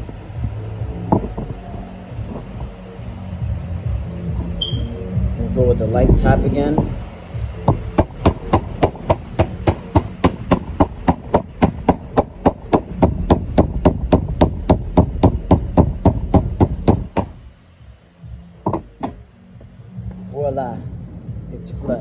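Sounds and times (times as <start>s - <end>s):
mallet tapping on metal case: 18.6s - 19.2s.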